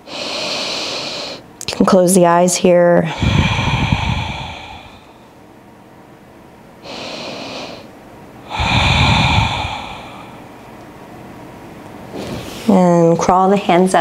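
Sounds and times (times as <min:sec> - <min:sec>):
person breathing deeply: 0:00.0 - 0:01.4, 0:03.0 - 0:05.4, 0:06.8 - 0:10.6.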